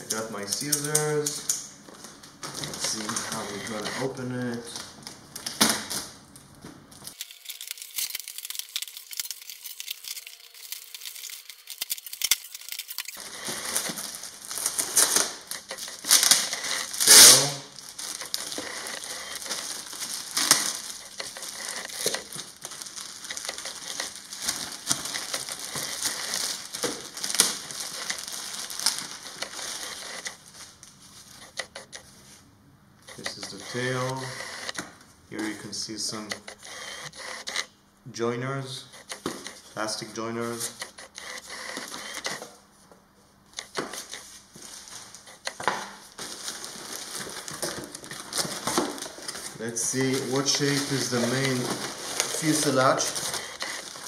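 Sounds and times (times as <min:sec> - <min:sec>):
plastic bags crinkling: 0:00.1 - 0:31.5, 0:43.8 - 0:54.0
cardboard ripping: 0:07.1 - 0:30.4, 0:46.2 - 0:54.0
cardboard flaps rustling: 0:43.7 - 0:54.0.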